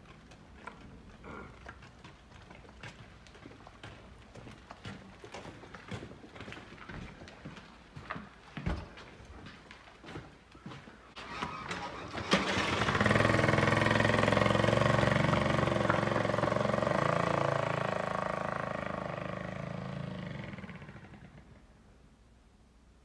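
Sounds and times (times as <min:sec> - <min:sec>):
small motorbike engine: 0:11.2 - 0:21.7.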